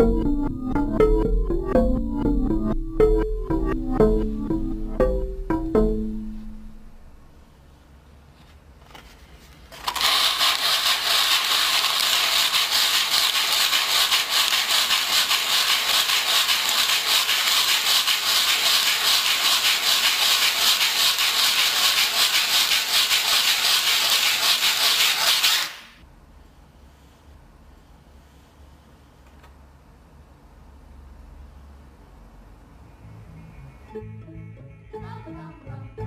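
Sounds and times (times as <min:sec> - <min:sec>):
hand scrubbing wooden board: 0:10.0 - 0:25.8.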